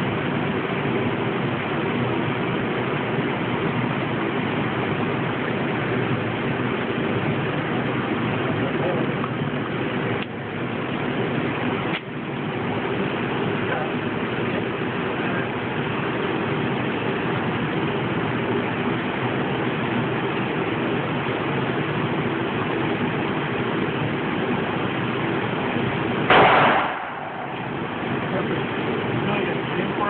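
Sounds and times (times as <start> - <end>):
steady background rumble: 0.0 - 30.0
pistol shot: 26.3 - 28.0.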